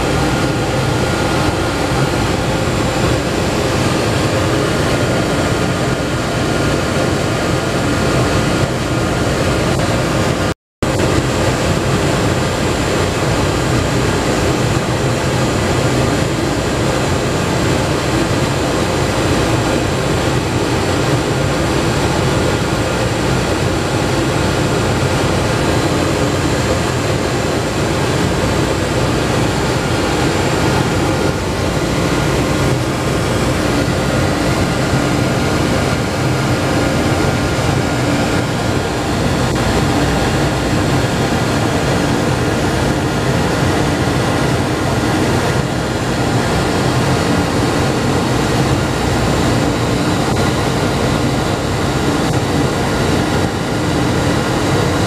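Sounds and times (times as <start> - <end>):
boiler room machinery drone: 0.0 - 55.0
faint steady whines: 0.0 - 55.0.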